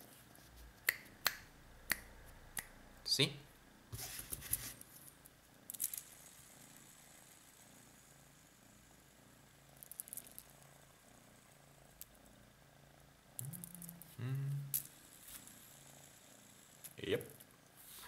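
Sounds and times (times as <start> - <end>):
cat purring: 5.5 - 17.1.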